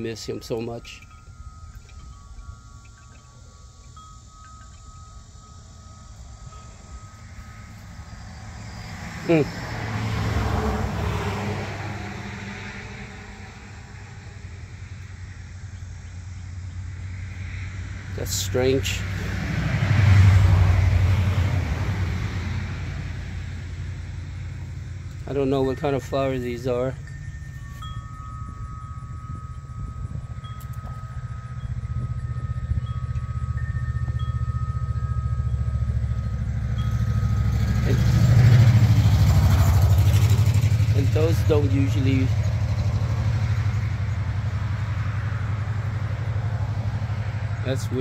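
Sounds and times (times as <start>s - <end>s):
metal wind chimes ringing: 0.0s - 22.3s, 22.9s - 48.0s
vehicle passing by: 0.0s - 48.0s
engine idling: 22.7s - 48.0s.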